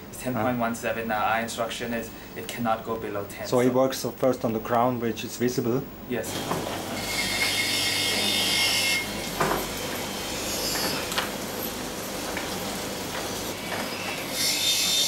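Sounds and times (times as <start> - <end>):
high grinding hiss: 6.2 - 11.8
machine running noise: 6.2 - 15.0.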